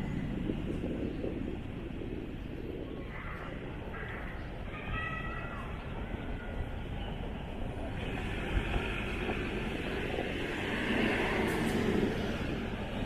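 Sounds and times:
city street traffic: 0.0 - 13.0
bus passing close by: 7.5 - 13.0.

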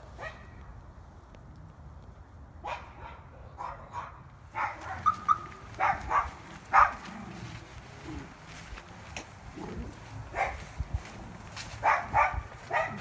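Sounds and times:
dog barking: 0.2 - 0.5, 2.6 - 7.1, 10.3 - 10.7, 11.8 - 13.0.

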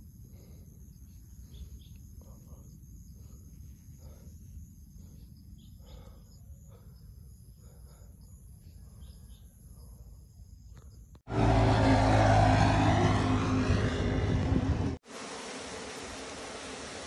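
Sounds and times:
insects calling: 0.0 - 11.2
low outdoor rumble: 11.3 - 17.0.

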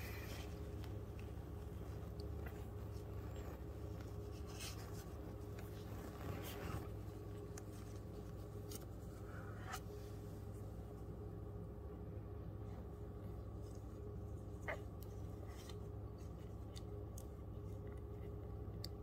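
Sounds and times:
rustling on newspaper: 0.0 - 10.0
low room hum: 0.0 - 19.0.

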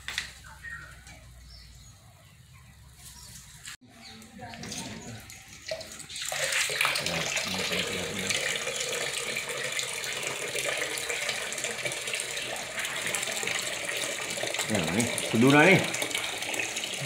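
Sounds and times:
water splashing into a bucket: 4.6 - 17.0.

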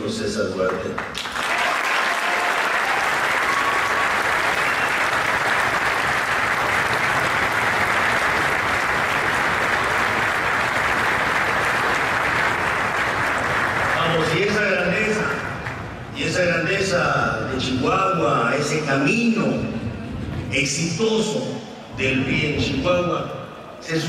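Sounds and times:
large audience applauding: 0.6 - 16.1.

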